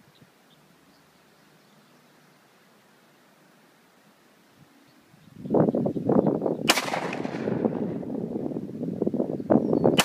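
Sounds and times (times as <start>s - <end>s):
pistol shot with ringing tail: 6.7s - 7.9s.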